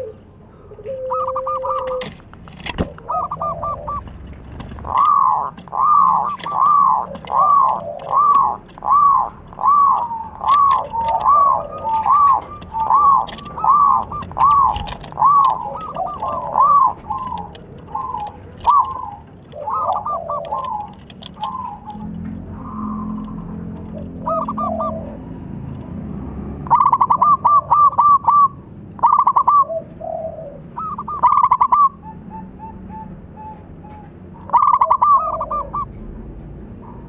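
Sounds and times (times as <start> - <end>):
dove cooing: 0.0 - 25.6, 26.6 - 36.0.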